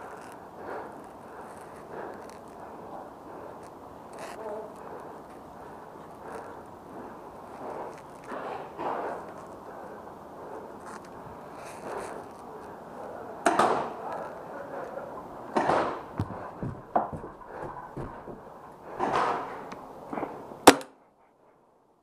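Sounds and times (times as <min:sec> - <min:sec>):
dull knocks and scuffs: 0:15.6 - 0:19.4
paintball marker shot: 0:20.7 - 0:21.0.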